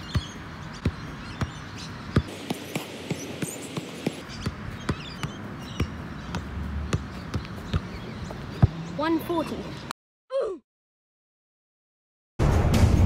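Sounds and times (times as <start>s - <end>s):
soccer ball thuds on feet: 0.0s - 8.8s.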